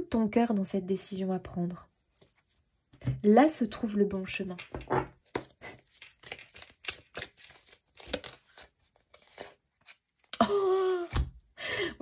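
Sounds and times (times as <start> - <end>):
cards rustling and clicking: 4.6 - 10.3.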